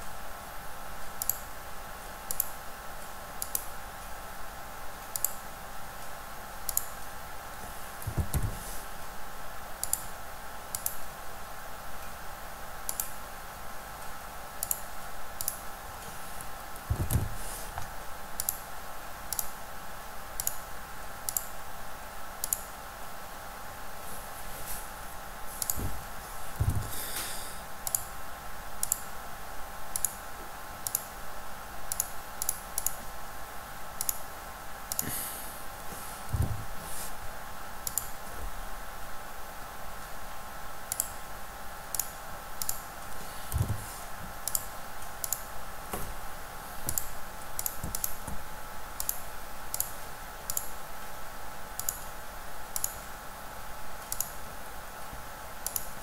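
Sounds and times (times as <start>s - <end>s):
steady background hum: 0.0s - 56.0s
computer mouse clicks: 1.2s - 1.4s, 2.3s - 2.6s, 3.4s - 3.7s, 5.1s - 5.4s, 6.7s - 6.9s, 9.8s - 10.1s, 10.7s - 11.0s, 12.9s - 13.2s, 14.6s - 15.6s, 17.8s - 18.6s, 20.4s - 20.6s, 21.3s - 21.5s, 22.4s - 22.7s, 25.6s - 26.0s, 27.8s - 28.1s, 28.8s - 29.1s, 29.9s - 30.2s, 30.8s - 31.1s, 31.9s - 33.0s, 34.0s - 34.2s, 34.9s - 35.1s, 37.8s - 38.2s, 40.9s - 41.2s, 41.9s - 43.8s, 44.4s - 45.5s, 46.8s - 48.4s, 49.0s - 50.8s, 51.8s - 52.1s, 52.8s - 53.1s, 54.0s - 54.4s, 55.6s - 56.0s.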